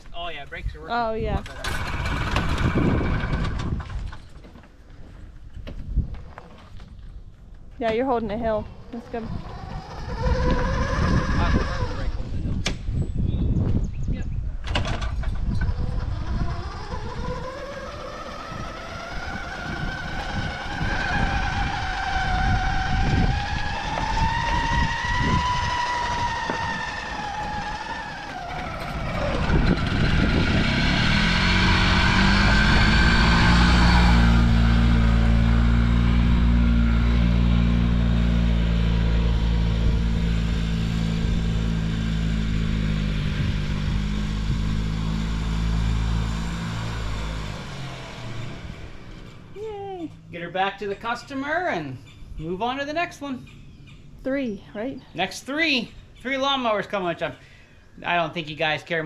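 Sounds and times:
golf cart engine running: 0:00.9 - 0:04.4, 0:07.9 - 0:12.6, 0:14.6 - 0:51.6.

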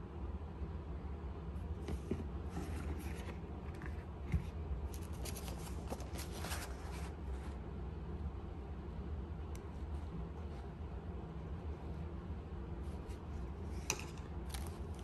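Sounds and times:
low steady hum: 0:00.0 - 0:15.0
rustling and scraping of handling: 0:01.8 - 0:07.6.

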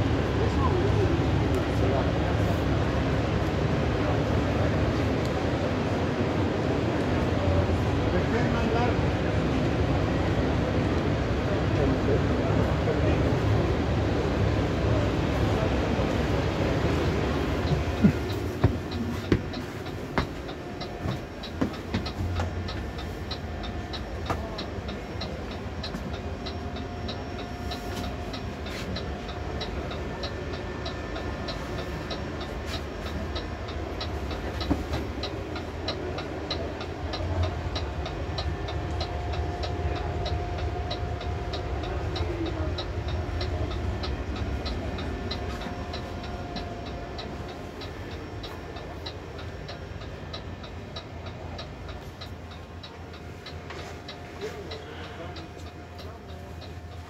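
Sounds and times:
low steady hum: 0:00.0 - 0:57.0
rapid ticking: 0:16.2 - 0:57.0.

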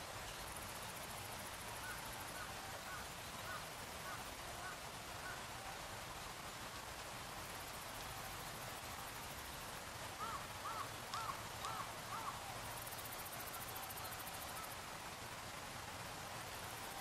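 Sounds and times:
steady outdoor hiss: 0:00.0 - 0:17.0
bird calling: 0:10.2 - 0:12.7.

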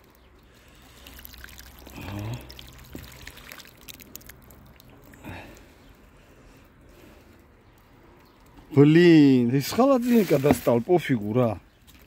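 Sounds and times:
pouring with small clicks: 0:00.0 - 0:05.8.

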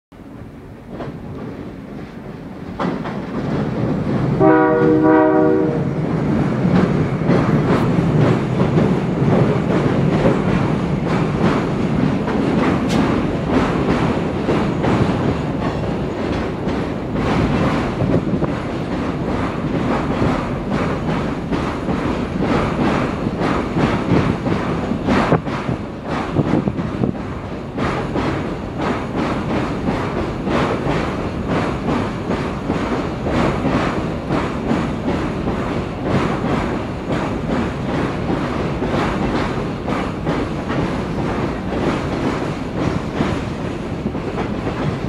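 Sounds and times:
train rumbling across bridge: 0:00.1 - 0:45.0
train wheels clicking: 0:00.2 - 0:45.0
train horn: 0:04.4 - 0:06.0.

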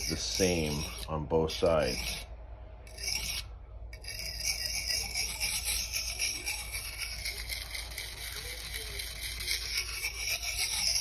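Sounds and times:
knife grinding on whetstone: 0:00.0 - 0:02.3, 0:02.9 - 0:11.0.

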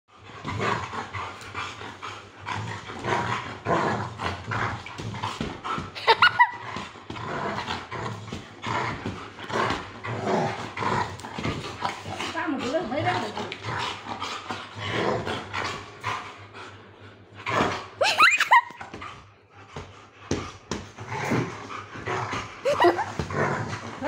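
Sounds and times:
dog growling in play: 0:00.1 - 0:19.3, 0:19.9 - 0:24.0
dog yelping: 0:18.0 - 0:18.7.

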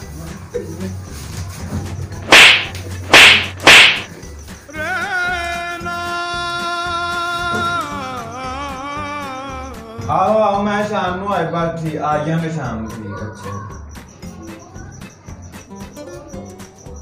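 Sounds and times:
sharp slap cracks: 0:02.2 - 0:04.1.

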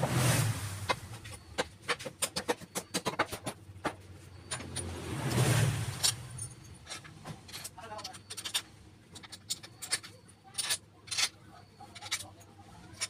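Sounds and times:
passing vehicle engine: 0:00.0 - 0:01.3, 0:04.4 - 0:06.5.

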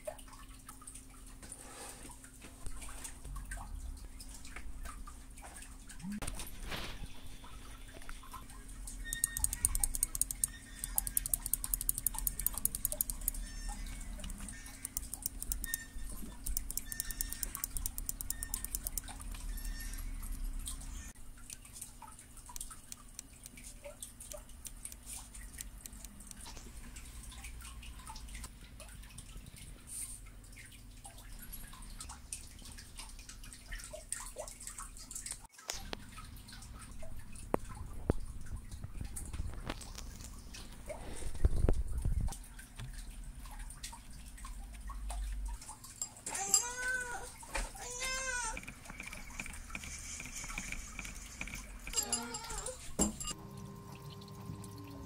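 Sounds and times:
mouse wheel clicking: 0:09.0 - 0:19.3, 0:24.6 - 0:26.4, 0:48.5 - 0:52.0
mouse being handled: 0:09.1 - 0:20.0.

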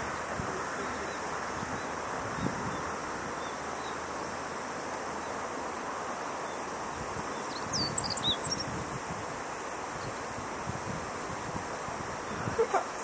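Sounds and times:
continuous outdoor hiss: 0:00.0 - 0:13.0.

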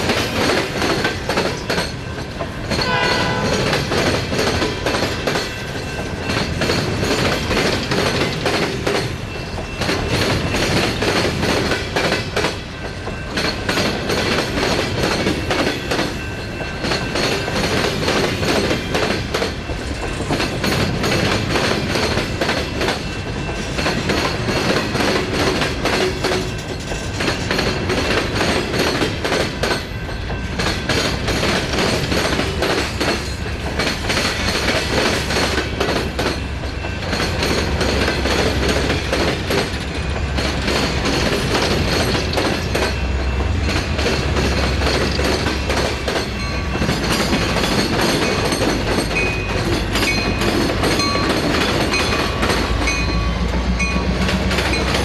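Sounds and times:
train wheels clacking over rail joints: 0:00.0 - 0:55.0.

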